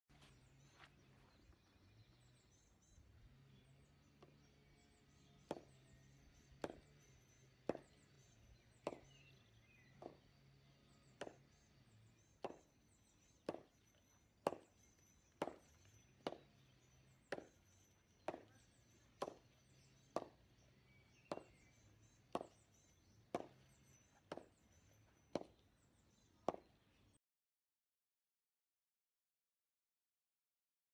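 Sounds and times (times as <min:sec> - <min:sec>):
cricket bat striking ball: 0:05.4 - 0:05.8, 0:06.6 - 0:08.2, 0:08.8 - 0:09.4, 0:10.0 - 0:10.5, 0:11.1 - 0:11.6, 0:12.4 - 0:12.7, 0:13.4 - 0:13.8, 0:14.4 - 0:14.8, 0:15.4 - 0:20.6, 0:21.2 - 0:22.7, 0:23.3 - 0:24.6.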